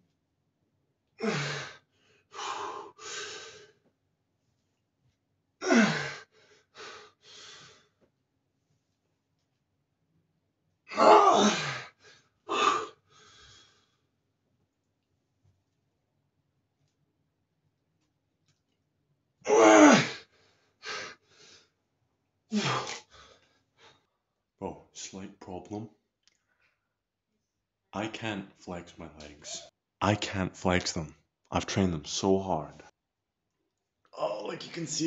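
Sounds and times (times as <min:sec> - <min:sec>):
man breathing: 0:06.2 - 0:07.9, 0:12.0 - 0:14.1.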